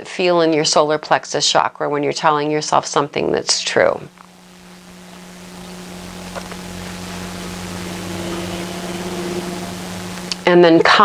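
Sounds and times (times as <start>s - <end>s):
low hum: 4.1s - 10.5s
steady hiss: 4.1s - 10.5s.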